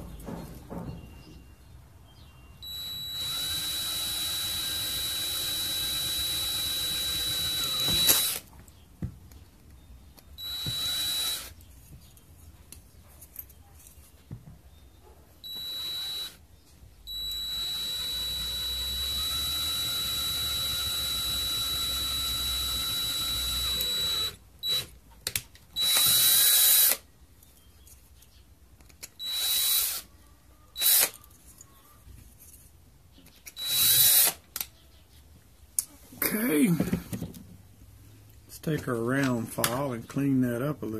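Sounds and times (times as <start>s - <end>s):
cordless drill drilling metal: 2.6s - 8.5s, 10.4s - 11.6s, 15.4s - 16.4s, 17.1s - 25.0s, 25.8s - 27.0s, 29.2s - 30.1s, 30.8s - 31.2s, 33.5s - 34.4s.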